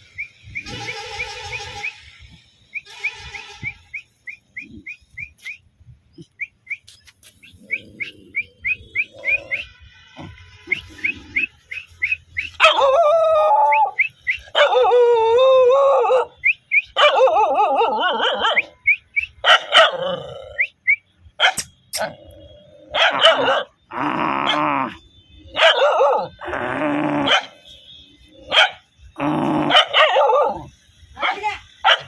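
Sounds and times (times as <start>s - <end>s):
dog howling: 12.6s - 16.3s.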